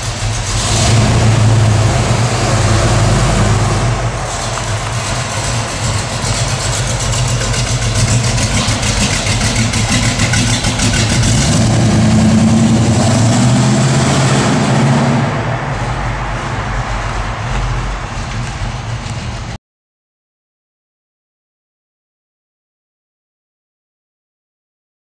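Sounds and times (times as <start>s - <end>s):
vee eight car engine pulling away: 0.0s - 19.6s.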